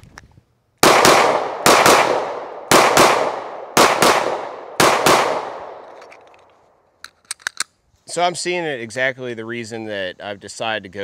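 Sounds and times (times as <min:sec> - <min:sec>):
pistol shots: 0:00.8 - 0:05.9.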